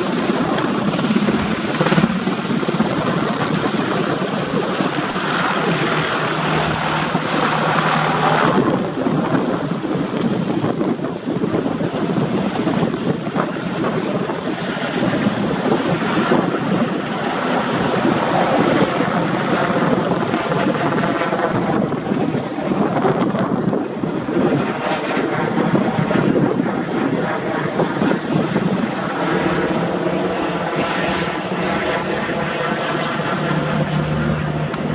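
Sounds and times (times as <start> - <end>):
helicopter rotor chopping overhead: 0.0 - 34.9.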